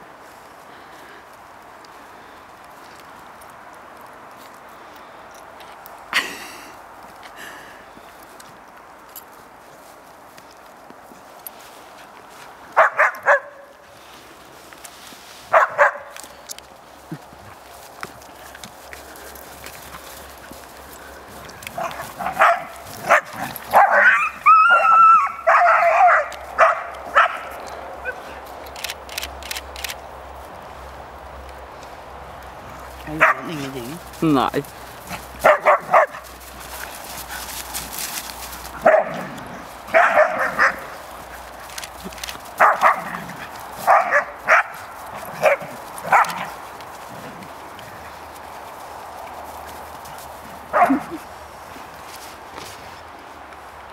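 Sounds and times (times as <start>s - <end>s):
dogs barking: 12.8s - 13.7s, 15.5s - 16.2s, 21.7s - 28.4s, 33.1s - 33.6s, 35.1s - 36.8s, 38.7s - 41.0s, 42.6s - 46.6s, 50.7s - 51.2s
dogs growling and snarling: 18.3s - 24.4s, 34.8s - 44.3s, 45.0s - 48.3s
dog yelping: 21.8s - 27.4s.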